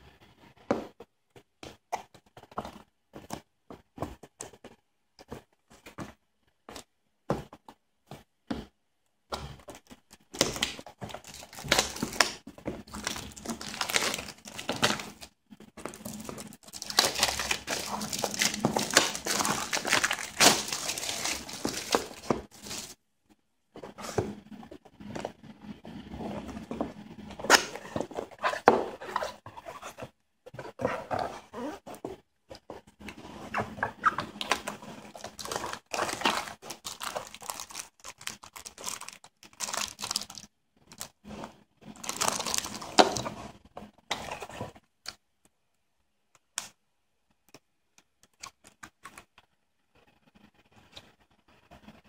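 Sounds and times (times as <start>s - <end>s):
plastic shrink-wrap crinkling: 10.3s - 23.0s, 34.0s - 41.2s, 41.9s - 43.3s.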